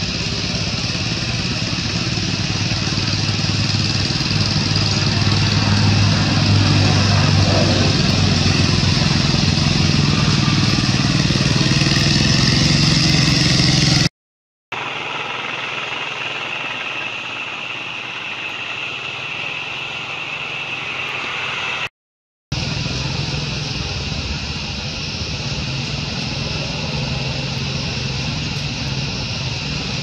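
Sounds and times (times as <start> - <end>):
engine running: 0.0 - 14.1, 14.7 - 21.9, 22.5 - 30.0
broad hiss: 22.6 - 30.0.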